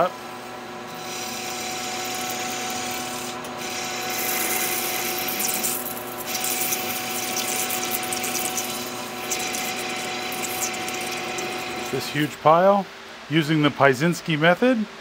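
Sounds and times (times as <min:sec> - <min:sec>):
lathe machine hum: 0:00.0 - 0:12.5
tool cutting metal hiss: 0:00.9 - 0:12.4.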